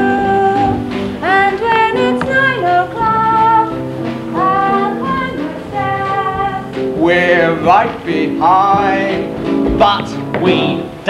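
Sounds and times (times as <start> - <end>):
woman singing: 0.0 - 6.8
instrumental accompaniment: 0.0 - 11.0.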